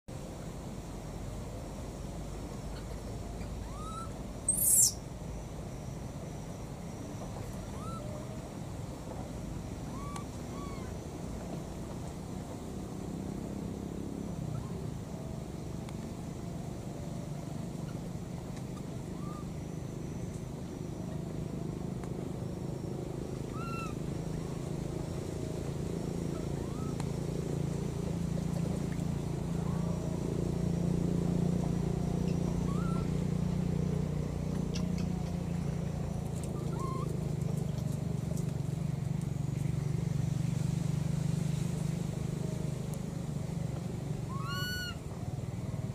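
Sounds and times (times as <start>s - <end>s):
steady low hum: 0.1s - 45.9s
baby monkey squeaking calls: 2.7s - 5.0s, 7.7s - 8.2s, 9.9s - 10.9s, 18.7s - 19.5s, 23.5s - 24.0s, 26.3s - 27.0s, 32.3s - 33.2s, 36.6s - 37.2s, 44.3s - 45.0s.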